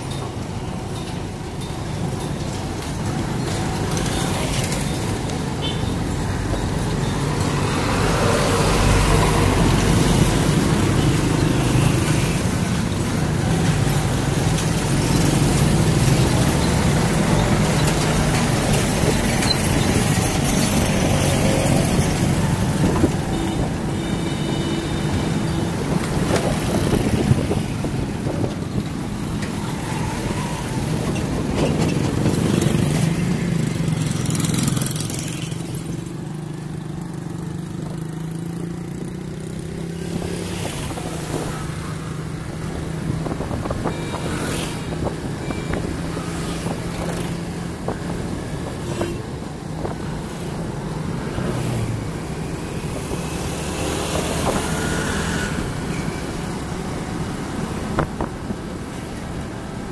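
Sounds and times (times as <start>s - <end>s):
nearby motor vehicles: 0.0s - 59.9s
road noise: 0.0s - 59.9s.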